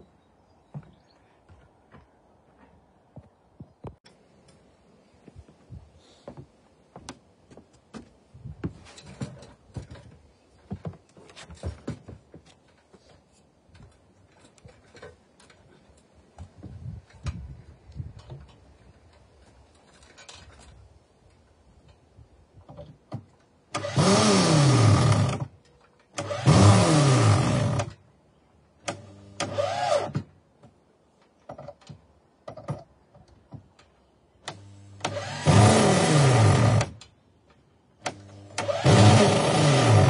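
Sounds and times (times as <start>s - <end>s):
cordless drill driving screw: 26.2s - 27.9s, 28.9s - 30.2s, 34.5s - 37.0s, 38.1s - 40.0s.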